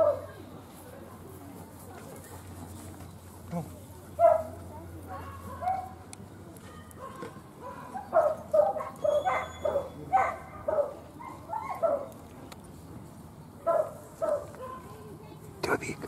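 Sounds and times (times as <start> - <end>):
small dog yapping: 7.1 - 12.1.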